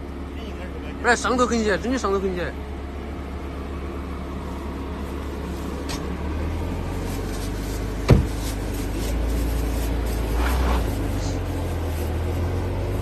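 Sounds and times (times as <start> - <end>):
car engine humming: 0.0 - 13.0
car door slamming: 8.0 - 8.5.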